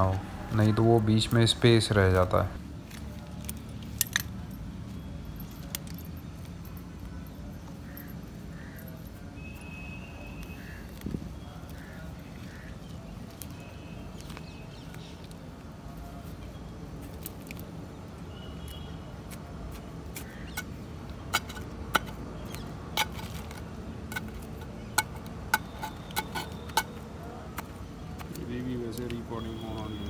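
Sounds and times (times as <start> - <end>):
hand tool scraping soil: 19.7 - 27.0.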